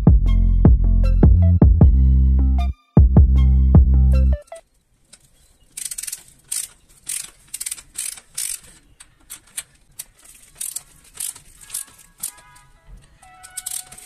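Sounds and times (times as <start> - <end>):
bicycle hub ratchet clicking: 5.8 - 12.4, 13.3 - 14.0.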